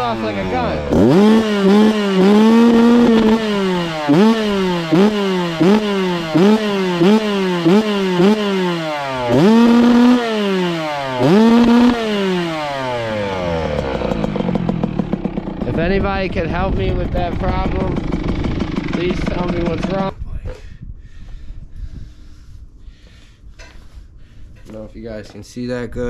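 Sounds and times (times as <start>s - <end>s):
dirt bike engine revving: 0.0s - 20.1s.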